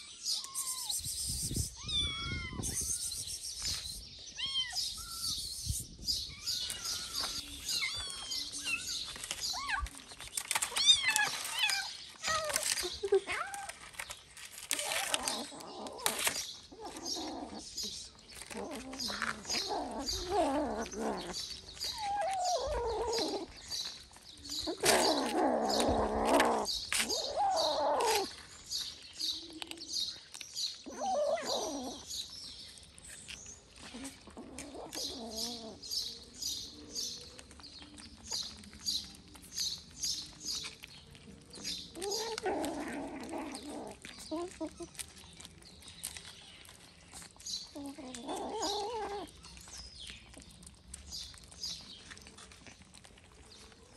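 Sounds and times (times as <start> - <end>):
kitten meows: 0.0 - 3.2, 4.3 - 5.4
kittens crunching kibble: 0.0 - 53.9.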